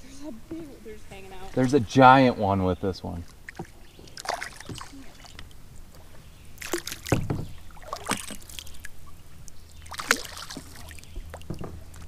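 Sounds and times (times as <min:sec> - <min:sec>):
fish thrashing and splashing: 0:03.3 - 0:05.6, 0:06.6 - 0:12.0.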